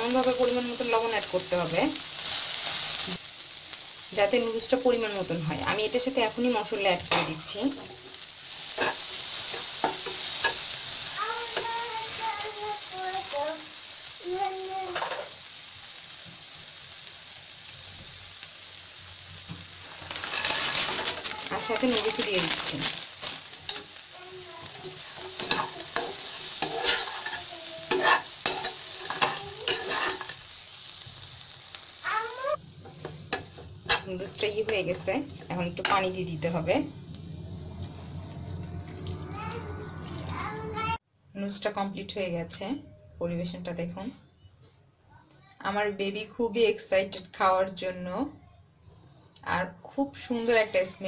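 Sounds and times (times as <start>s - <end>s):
food sizzling in a frying pan: 0.0s - 42.8s, 45.4s - 51.0s
spatula scraping a pan: 8.7s - 10.8s, 19.9s - 24.0s, 24.6s - 30.5s, 32.8s - 36.4s
wavering voice-like tones: 37.6s - 41.0s.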